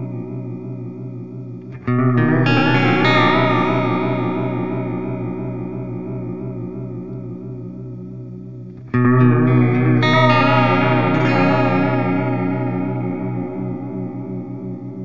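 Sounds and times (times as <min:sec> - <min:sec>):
wavering electric guitar chords: 0:00.0 - 0:15.0.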